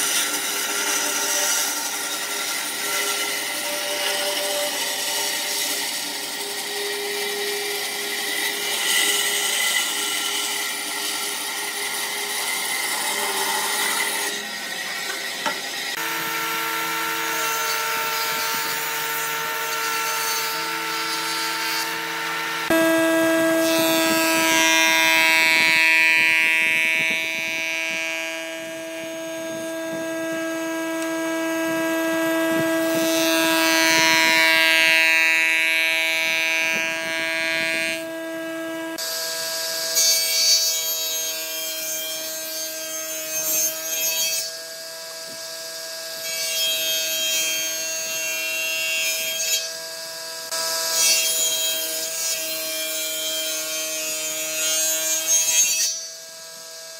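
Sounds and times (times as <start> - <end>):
table saw cutting wood: 0.0 - 56.9
jointer humming: 11.3 - 39.1.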